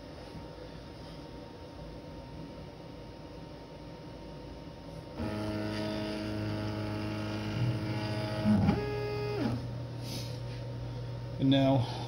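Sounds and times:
stepper motor whining: 0:05.2 - 0:09.8.

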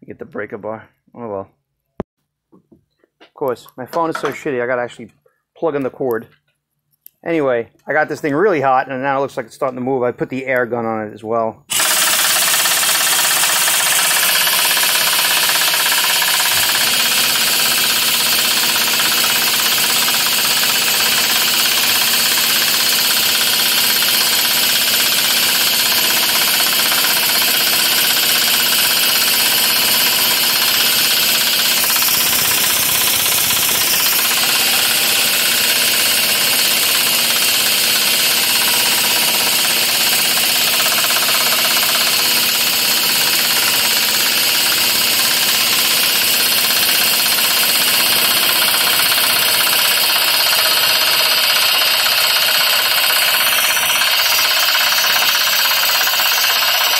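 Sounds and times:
pneumatic impact wrench hammering: 0:11.7 - 0:56.9.

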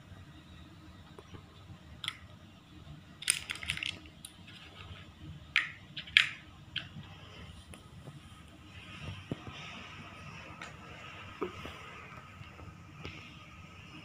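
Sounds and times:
plastic building blocks clacking: 0:03.2 - 0:07.0.

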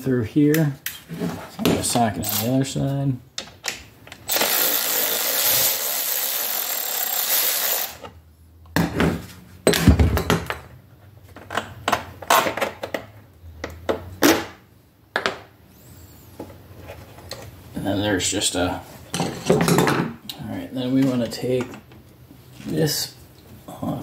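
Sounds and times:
electric ratchet running: 0:02.2 - 0:02.5, 0:04.2 - 0:08.1.

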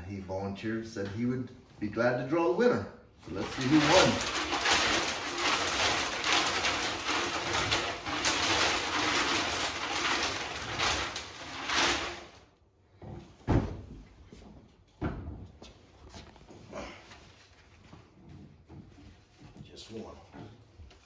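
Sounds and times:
paper tickets rattling in drum: 0:03.2 - 0:12.4.

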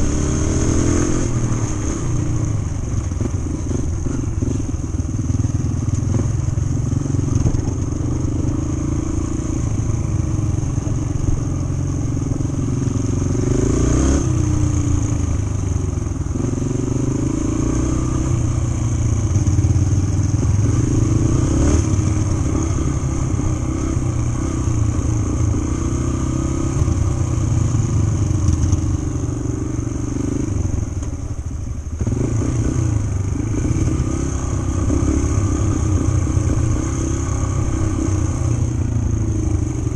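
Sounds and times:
dirt bike engine revving: 0:00.0 - 0:02.2, 0:13.2 - 0:14.8, 0:19.4 - 0:27.0, 0:32.0 - 0:39.9.

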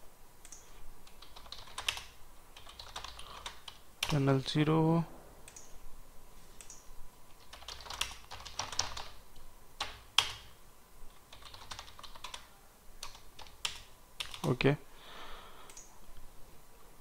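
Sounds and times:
computer keyboard typing: 0:00.4 - 0:04.3, 0:07.4 - 0:09.2, 0:09.8 - 0:10.6, 0:11.2 - 0:14.6.

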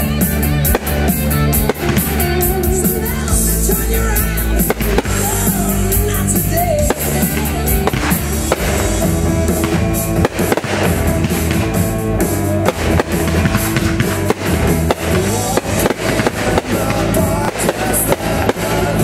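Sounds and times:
firework bangs and crackle: 0:00.0 - 0:19.0
music with loud drums: 0:00.0 - 0:19.0.

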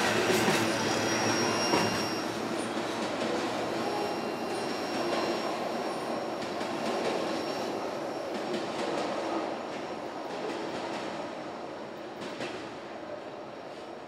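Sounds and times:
train wheels rumbling on rails: 0:00.0 - 0:14.0.

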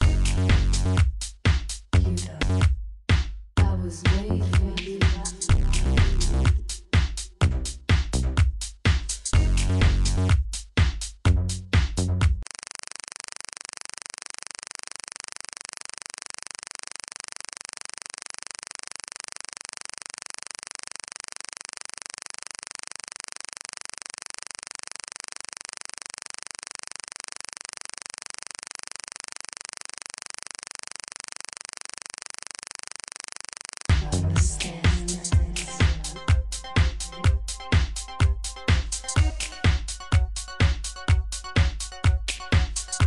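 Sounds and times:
static hiss: 0:12.5 - 0:43.0.

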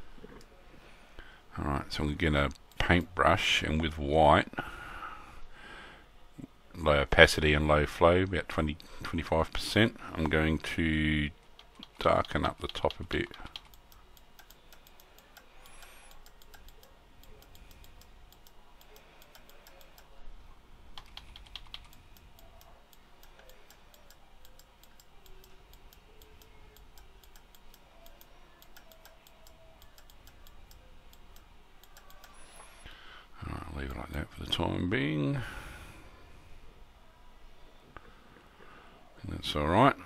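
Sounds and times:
computer keyboard tapping: 0:11.6 - 0:13.8, 0:21.0 - 0:22.6
computer mouse clicks: 0:11.6 - 0:20.1, 0:21.0 - 0:32.4.

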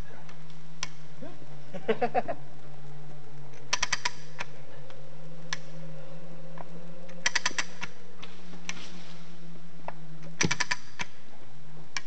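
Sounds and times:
hand winch ratchet clicking: 0:03.7 - 0:04.5, 0:07.1 - 0:07.9, 0:10.4 - 0:11.1.

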